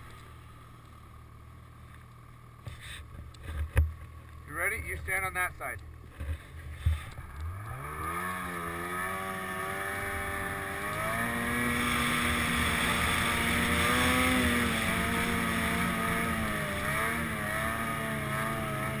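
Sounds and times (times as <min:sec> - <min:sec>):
snowmobile engine revving: 0:06.7 - 0:19.0.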